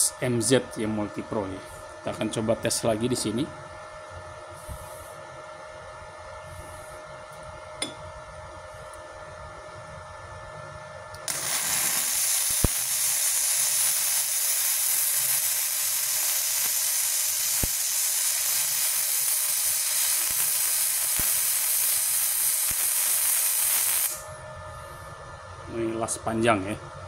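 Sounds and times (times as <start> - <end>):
welding arc hissing and popping: 11.2 - 24.3.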